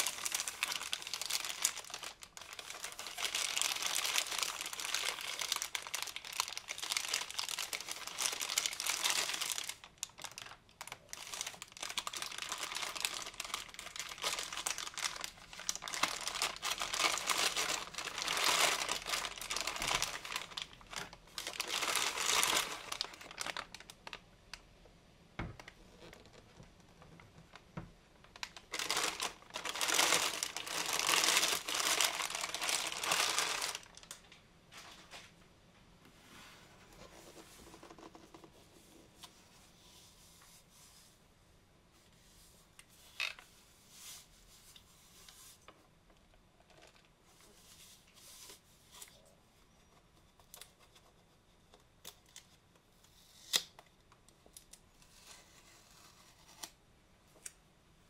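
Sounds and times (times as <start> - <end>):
plastic wrap crinkling: 0.0 - 24.6, 25.4 - 35.4.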